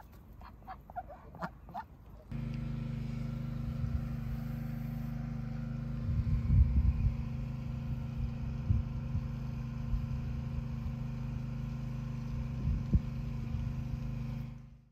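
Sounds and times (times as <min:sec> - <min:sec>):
low mechanical hum: 0:00.0 - 0:14.9
low rumbling thumps: 0:06.0 - 0:07.3.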